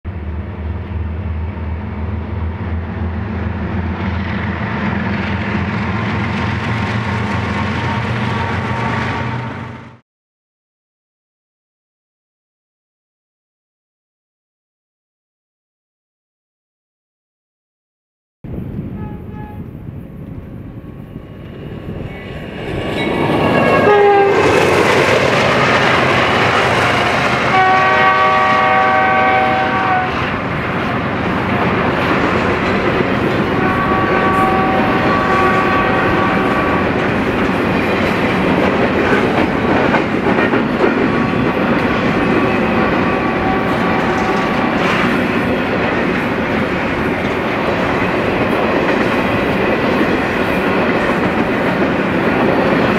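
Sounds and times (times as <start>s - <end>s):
freight train rumble: 0.1s - 10.0s, 18.4s - 52.9s
train air horn: 7.8s - 10.0s, 18.9s - 19.7s, 23.7s - 24.7s, 27.2s - 30.4s, 33.3s - 37.0s, 42.4s - 44.9s.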